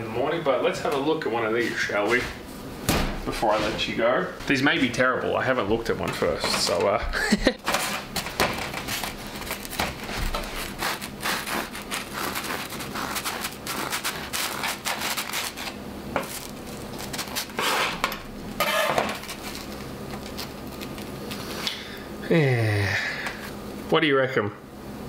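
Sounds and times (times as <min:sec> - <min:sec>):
bread knife sawing crusty roll: 0:08.9 - 0:18.0, 0:18.6 - 0:19.8.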